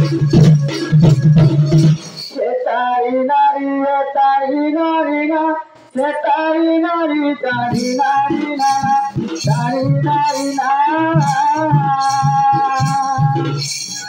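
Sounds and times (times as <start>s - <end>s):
drum percussion ensemble: 0.0s - 2.4s, 7.6s - 14.0s
person singing through pa: 0.0s - 14.0s.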